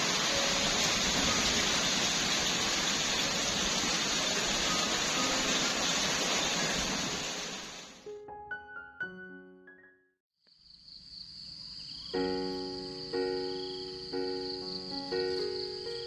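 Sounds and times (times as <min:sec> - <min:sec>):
steady rain falling: 0:00.0 - 0:08.0.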